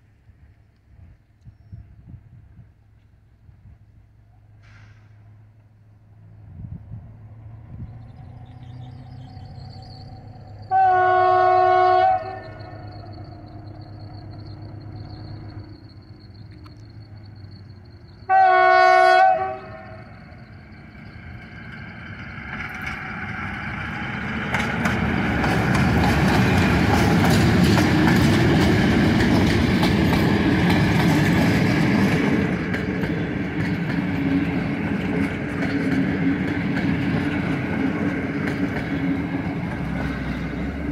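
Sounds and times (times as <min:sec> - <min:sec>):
diesel engine passing: 0:04.6 - 0:18.3, 0:19.6 - 0:40.9
locomotive horn blast: 0:10.7 - 0:12.9, 0:18.2 - 0:20.2
train wheels clicking over rail joints: 0:20.2 - 0:40.9.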